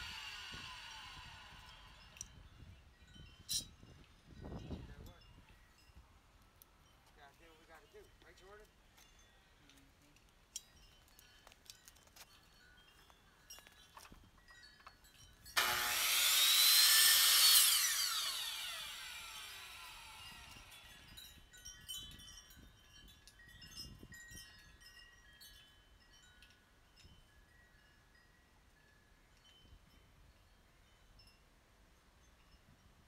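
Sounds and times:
miter saw cutting wood: 0:00.0 - 0:02.2, 0:15.6 - 0:21.0
saw motor winding down: 0:00.0 - 0:02.4, 0:15.6 - 0:21.1.

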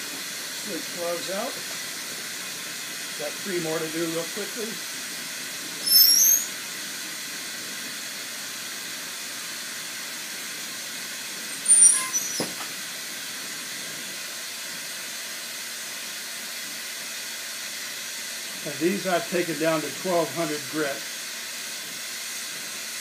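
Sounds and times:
torch flame hissing: 0:00.0 - 0:23.0
short high-pitched squeaks: 0:05.8 - 0:06.5, 0:11.5 - 0:12.7.

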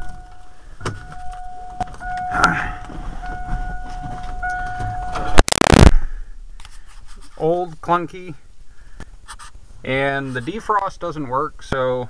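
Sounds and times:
dashboard warning tone: 0:00.0 - 0:05.9
clicks and rustling: 0:00.0 - 0:06.0
loud burst of noise: 0:05.3 - 0:06.4.

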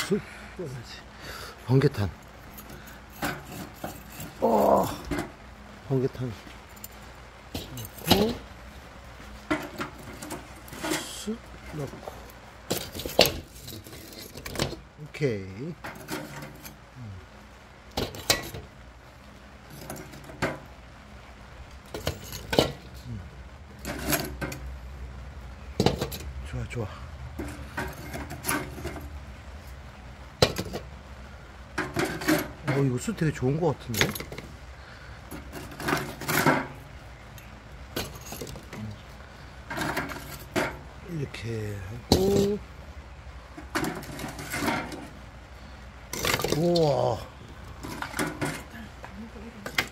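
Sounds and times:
charcoal clinking on metal grate: 0:01.6 - 0:05.4, 0:06.8 - 0:08.5, 0:09.4 - 0:16.8, 0:17.9 - 0:18.8, 0:19.6 - 0:20.7, 0:21.8 - 0:24.7, 0:25.7 - 0:29.2, 0:30.3 - 0:31.0, 0:31.7 - 0:34.6, 0:35.2 - 0:42.7, 0:43.5 - 0:45.2, 0:46.1 - 0:49.9.

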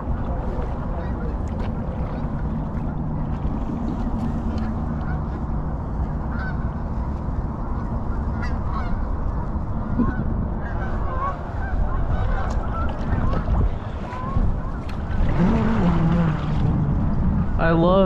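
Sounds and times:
steady low rumble: 0:00.0 - 0:18.0
geese honking: 0:06.1 - 0:07.1, 0:07.8 - 0:16.0.

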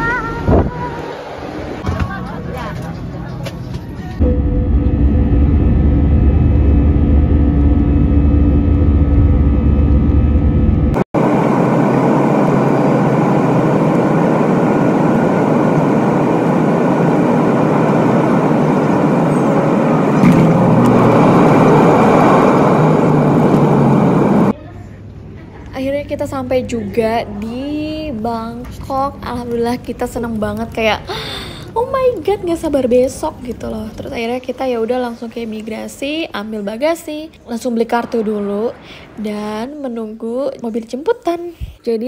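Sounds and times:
jet engines in cabin: 0:00.0 - 0:24.6
deep steady hum: 0:04.2 - 0:24.6.

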